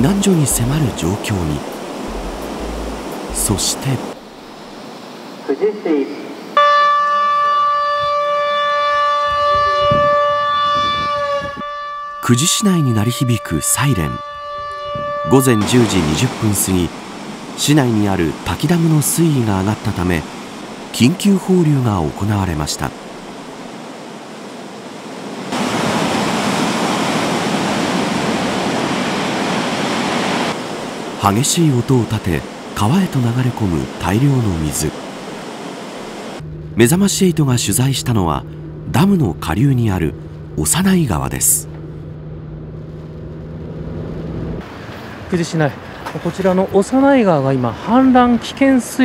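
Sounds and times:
warning siren blaring: 2.1s - 4.5s, 6.6s - 17.4s.

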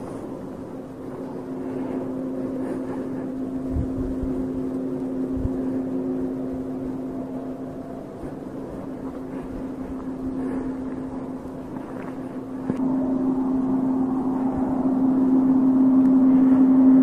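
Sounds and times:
low droning hum: 0.0s - 17.0s
dull low thumps: 2.0s - 7.4s.

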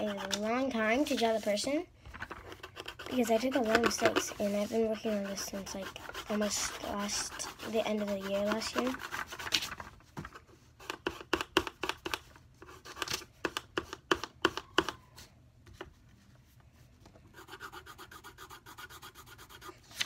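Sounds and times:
pencil scratching on paper: 0.0s - 1.6s, 2.4s - 9.6s, 17.3s - 20.0s.

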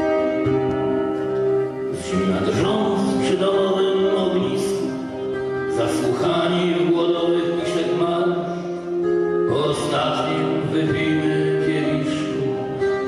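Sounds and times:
acoustic guitar: 0.0s - 13.0s
keyboard: 0.0s - 13.0s
man singing: 1.9s - 13.0s.

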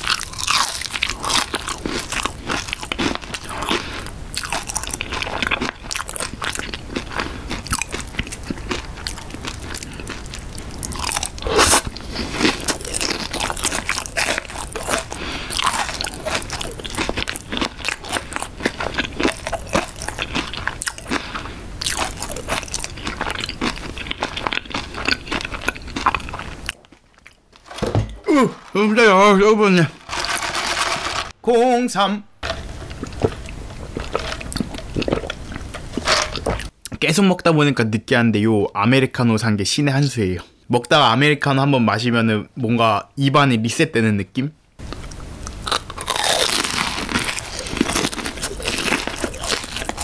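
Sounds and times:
person chewing crunchy crust: 0.0s - 27.6s, 32.8s - 36.8s, 44.8s - 50.0s.

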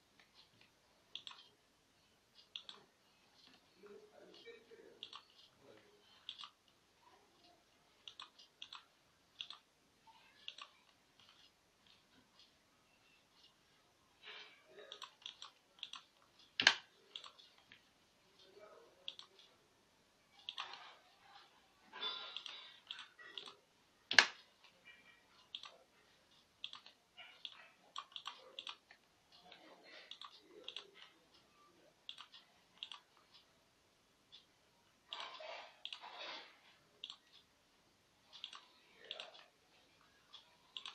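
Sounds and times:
computer mouse clicks: 0.2s - 1.6s, 2.4s - 3.6s, 4.3s - 5.5s, 6.2s - 6.8s, 7.4s - 13.6s, 14.2s - 17.8s, 19.0s - 19.5s, 20.4s - 31.2s, 32.0s - 33.4s, 35.1s - 37.4s, 38.3s - 40.9s.

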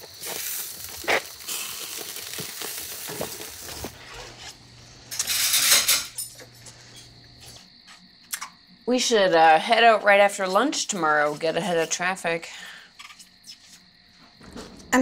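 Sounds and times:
steady hiss: 0.0s - 7.6s
plates and cutlery clinking: 5.1s - 7.1s.

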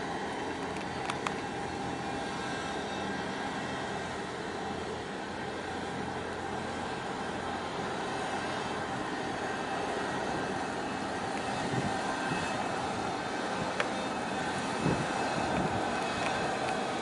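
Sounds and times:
ship engine drone: 0.0s - 17.0s
wind buffeting microphone: 11.2s - 17.0s.

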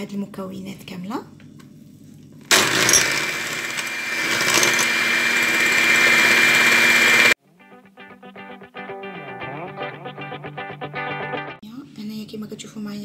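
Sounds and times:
electric hand mixer whining: 2.5s - 7.4s
guitar music: 7.4s - 11.6s.

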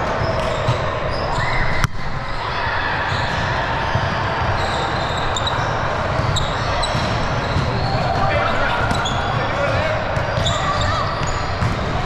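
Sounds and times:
reverberant gym din: 0.0s - 12.0s
balls bouncing: 5.3s - 12.0s.

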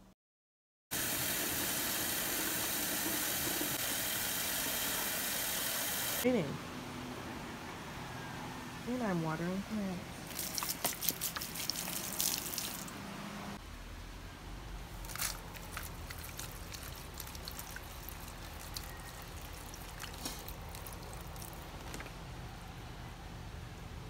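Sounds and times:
water pouring onto plants: 10.3s - 12.9s, 15.0s - 22.1s
water trickling and dripping: 10.3s - 13.0s, 15.1s - 22.1s.

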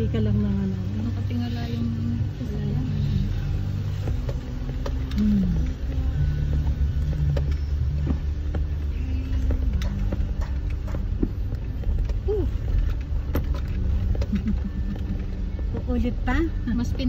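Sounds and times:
car engine running at low speed: 0.0s - 17.0s
tyres and body knocking: 4.0s - 17.0s.

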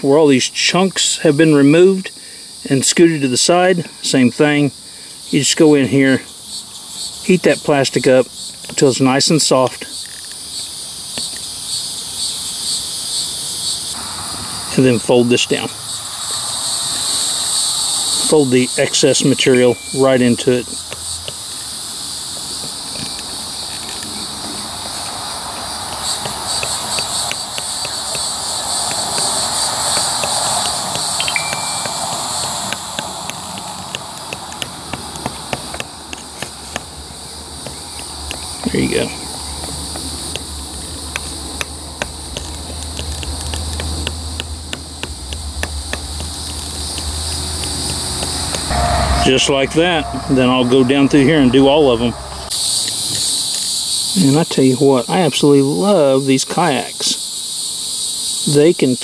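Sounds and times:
constant hiss: 0.0s - 59.0s
crickets chirring: 0.0s - 59.0s
insects trilling: 0.0s - 59.0s
low steady rumble: 40.4s - 52.5s.

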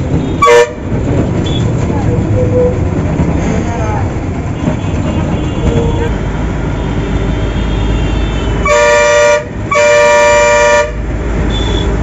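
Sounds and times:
bus engine and road rumble: 0.0s - 12.0s
rattling inside bus: 0.0s - 12.0s.

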